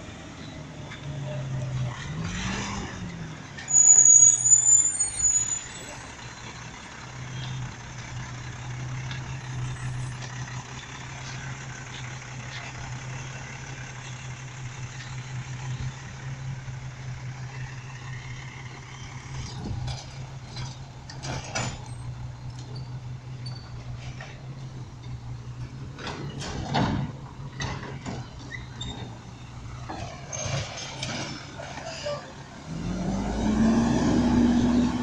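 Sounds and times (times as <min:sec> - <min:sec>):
garbage truck engine droning: 0:00.0 - 0:35.0.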